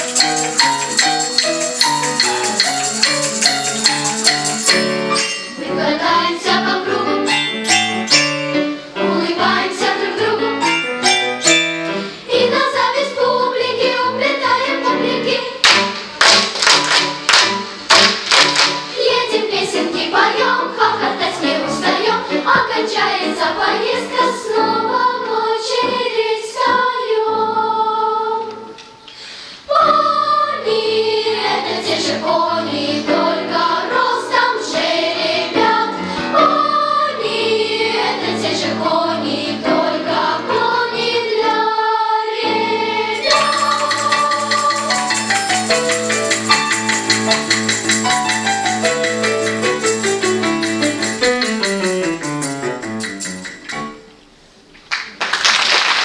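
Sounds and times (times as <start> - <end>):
instrumental accompaniment with percussion: 0.0 - 13.4, 15.6 - 20.9, 43.0 - 54.1
children's choir singing: 4.8 - 48.6.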